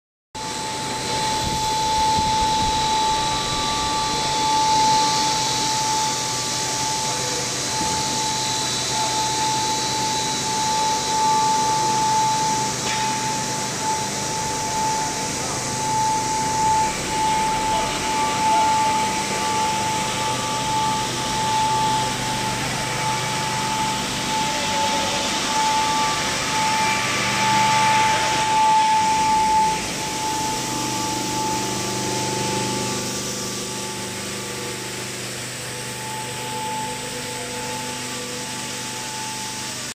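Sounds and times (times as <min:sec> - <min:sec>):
extruder machinery running: 0:00.4 - 0:39.9
high machine whine: 0:00.4 - 0:39.9.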